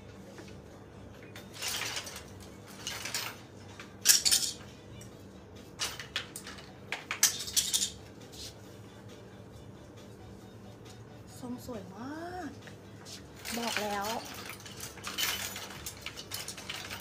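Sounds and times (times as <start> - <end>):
clothes hangers clattering: 1.2 - 5.1, 5.8 - 8.0, 13.3 - 17.0.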